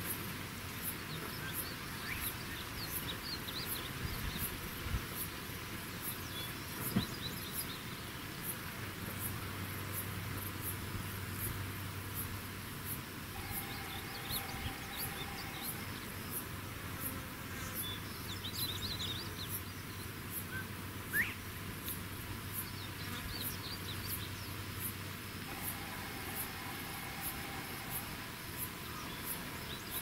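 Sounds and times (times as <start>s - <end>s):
steady hiss: 0.0s - 30.0s.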